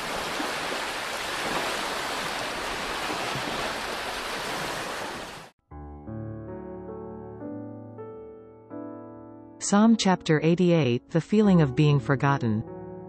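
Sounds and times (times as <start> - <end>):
ocean surf washing: 0.0 - 5.5.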